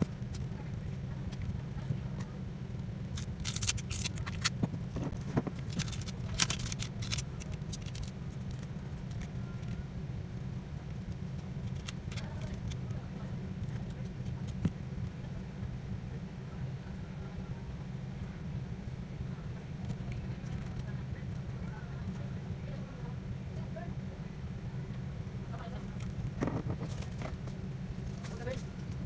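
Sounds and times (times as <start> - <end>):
steady low hum: 0.0 - 29.0
smartphone parts clicking and scraping: 3.1 - 9.8, 11.6 - 12.8.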